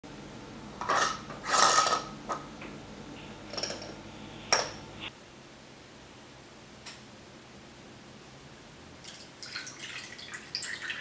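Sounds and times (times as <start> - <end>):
metal jar lid scraping: 0.8 - 2.1.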